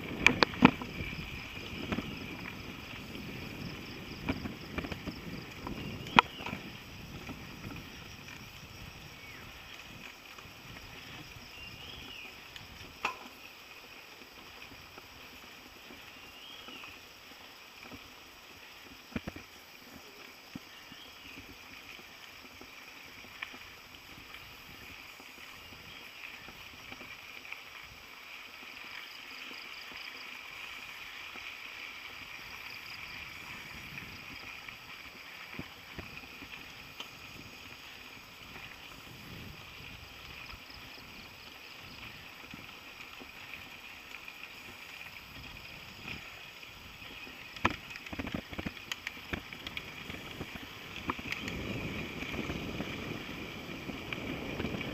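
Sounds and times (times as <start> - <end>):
wind on microphone: 0.0 - 13.0, 32.8 - 34.6, 35.5 - 42.7, 45.2 - 54.9
bike knocking and rattling: 0.0 - 13.6, 33.1 - 54.9
bike tyres rolling over gravel: 0.0 - 54.9.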